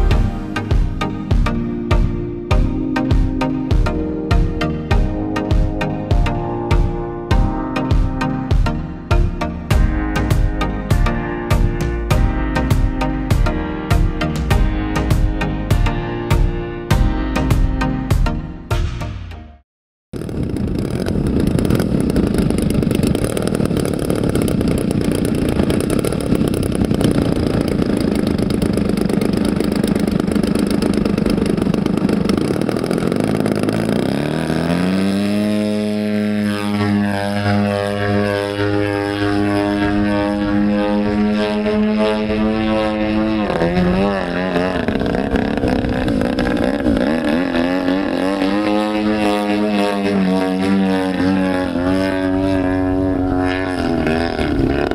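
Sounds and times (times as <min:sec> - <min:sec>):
model aeroplane engine: 0:20.2 - 0:54.9.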